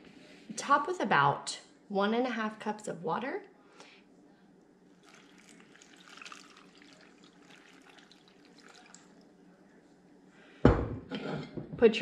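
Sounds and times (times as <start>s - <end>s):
water trickling into a pot: 4.9s - 9.8s.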